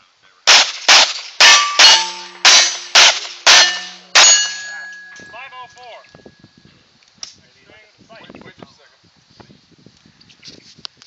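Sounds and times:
handgun shots: 0:00.5 - 0:04.7
steel plate ringing: 0:01.4 - 0:06.4.

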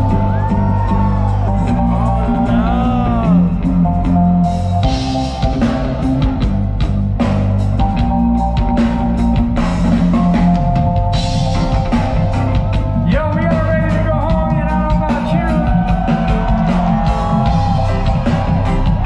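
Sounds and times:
crowd noise: 0:00.0 - 0:19.0
reggae band playing live: 0:00.0 - 0:19.0.

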